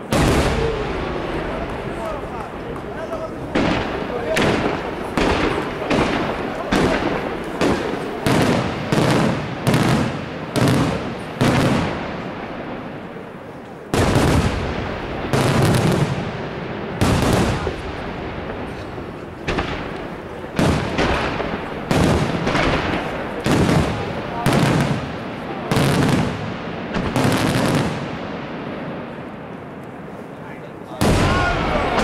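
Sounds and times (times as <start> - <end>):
firework shells bursting: 0.0 - 12.9, 17.0 - 28.0.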